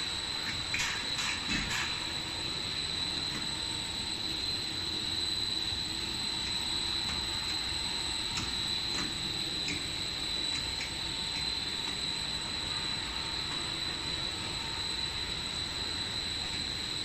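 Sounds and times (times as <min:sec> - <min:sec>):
high-pitched whine: 0:00.0 - 0:17.0.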